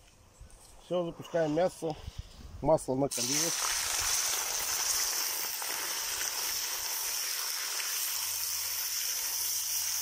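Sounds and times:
meat sizzling in hot oil: 3.1s - 10.0s.

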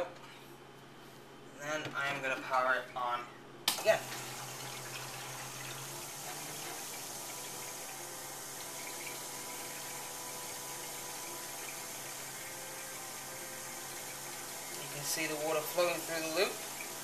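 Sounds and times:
pump running: 3.7s - 17.0s
water churning and gurgling: 3.9s - 17.0s.

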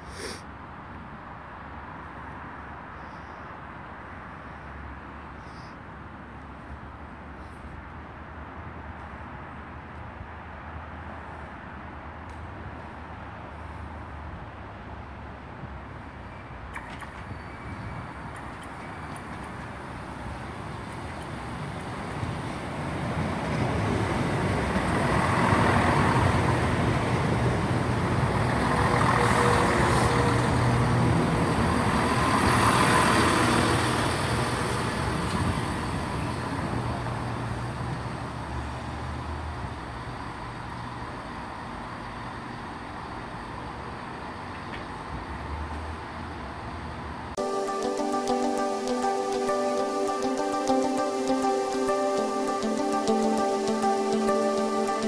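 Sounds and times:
train diesel engines running: 10.9s - 55.0s.

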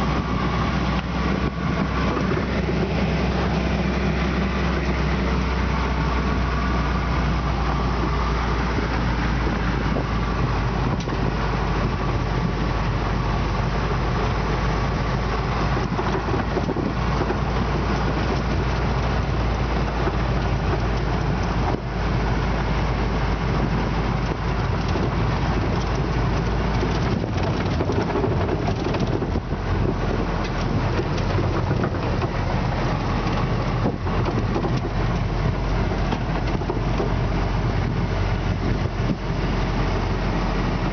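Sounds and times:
jeep engine running: 0.0s - 40.9s
tyre and road noise on gravel: 0.0s - 40.9s
body rattles: 23.4s - 40.2s.

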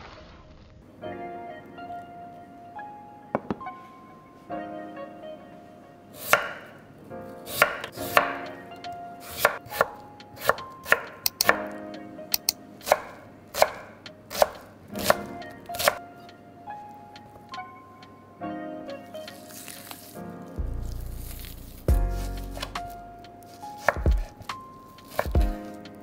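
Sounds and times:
knife chopping on wooden board: 6.2s - 6.6s, 7.5s - 8.3s, 12.8s - 15.2s, 25.0s - 25.8s.

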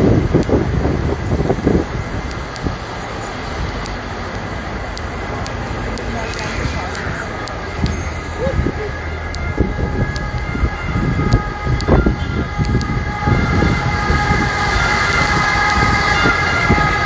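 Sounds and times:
bus engines and traffic: 0.0s - 17.0s
steady high whine: 0.0s - 17.0s.

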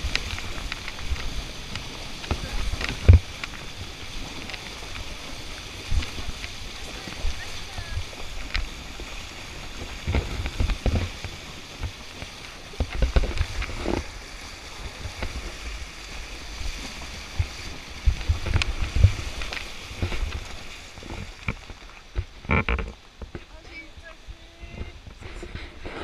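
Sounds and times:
water splashing around wheels: 0.0s - 26.0s.

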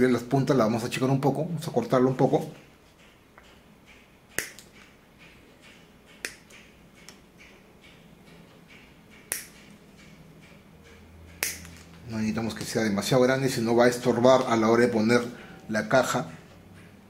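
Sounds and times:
pliers snipping wires: 4.3s - 4.8s, 9.1s - 9.7s, 11.3s - 12.0s.

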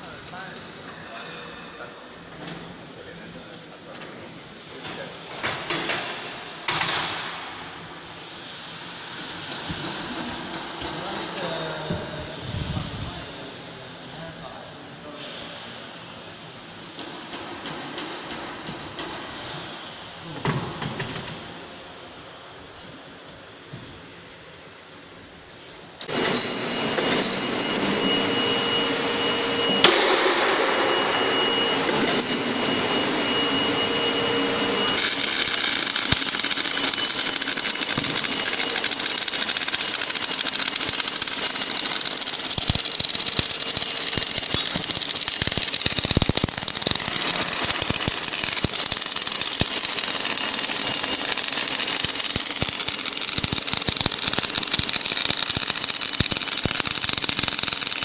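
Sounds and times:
electrical whine and hum: 27.7s - 58.0s
welding arc crackling hiss: 34.9s - 58.0s.

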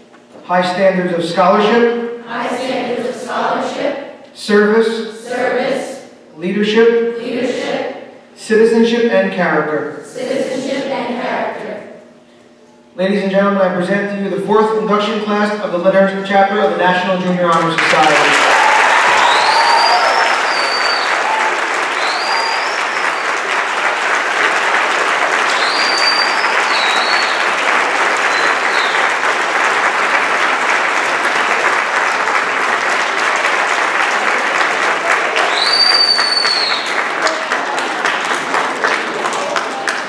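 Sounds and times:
audience applauding: 17.5s - 40.0s
high whistles rising in pitch: 19.0s - 23.4s, 25.4s - 27.6s, 28.2s - 29.1s, 35.4s - 37.0s.

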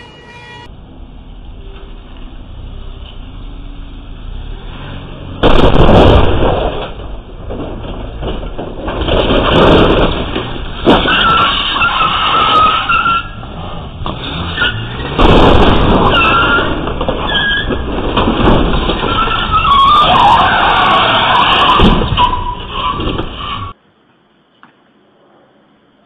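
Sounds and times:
loud crash into wall: 5.4s - 12.8s, 14.9s - 23.3s
tyres squealing: 9.5s - 23.8s
car engine revving: 13.4s - 17.2s.

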